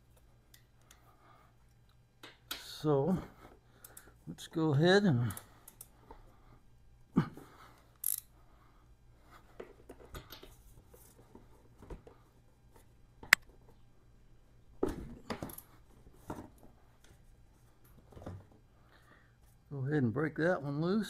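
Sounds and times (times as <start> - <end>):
ratchet clicks and knocks: 8.0 - 8.3.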